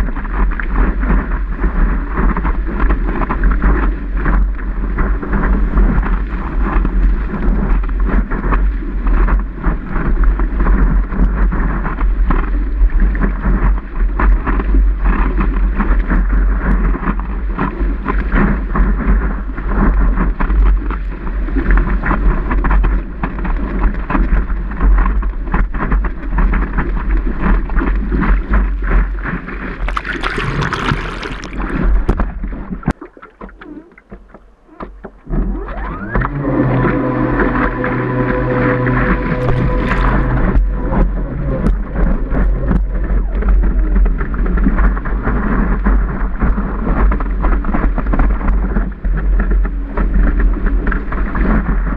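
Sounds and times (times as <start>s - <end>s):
wind buffeting microphone: 0.0s - 51.9s
whitewater rushing: 35.6s - 44.5s.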